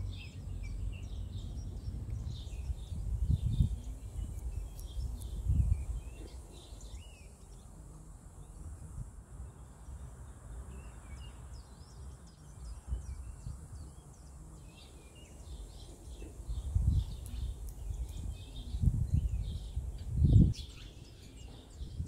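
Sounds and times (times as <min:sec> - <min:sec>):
breeze rumble: 0:00.0 - 0:22.0
songbirds chirping: 0:00.0 - 0:22.0.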